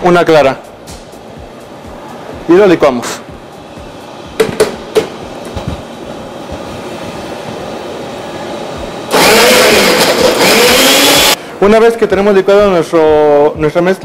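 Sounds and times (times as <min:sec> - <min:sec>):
blender motor running: 0:09.1 - 0:11.4.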